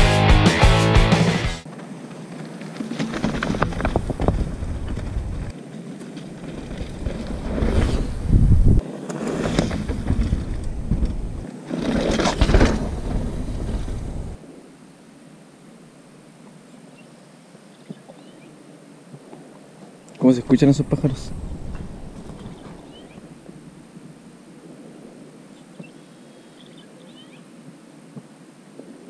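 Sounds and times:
bike tyres on dirt and stones: 1.6 - 14.4, 20.6 - 24.4
wind buffeting microphone: 3.1 - 11.5, 12.2 - 14.5, 20.4 - 25.4.

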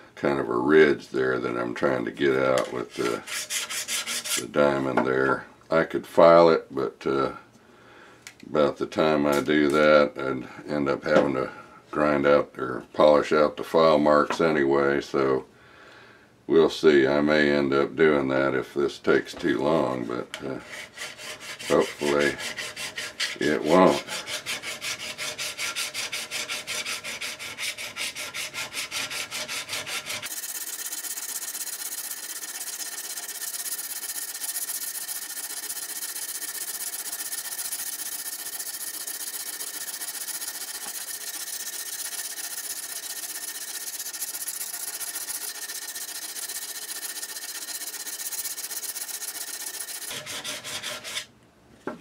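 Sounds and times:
hone scraping steel blade: 2.4 - 4.5, 19.8 - 51.3.

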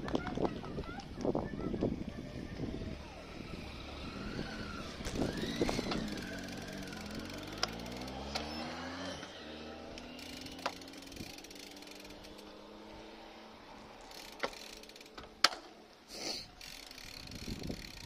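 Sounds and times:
bicycle rolling over pavement: 0.0 - 18.0
vehicle engine hum: 1.6 - 16.0
bicycle mechanical clicking: 3.4 - 18.0.

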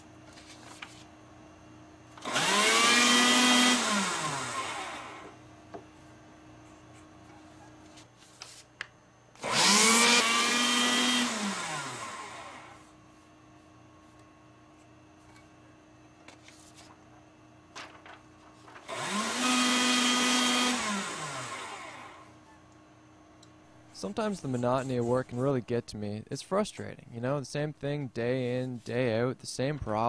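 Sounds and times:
paper shredder motor humming: 2.0 - 5.6, 9.3 - 13.0, 17.8 - 22.4.

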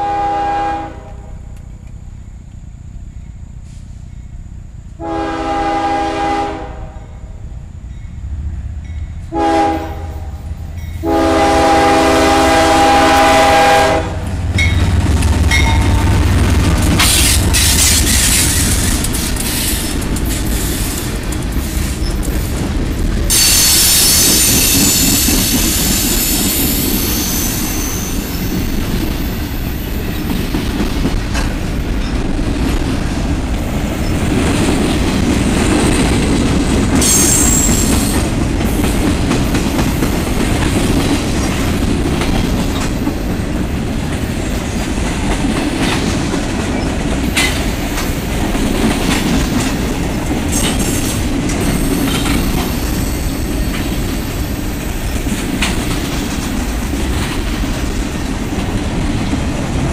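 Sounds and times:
train wheels rumbling on rails: 0.0 - 59.9
high wheel squeal: 23.3 - 30.3, 37.0 - 38.3.

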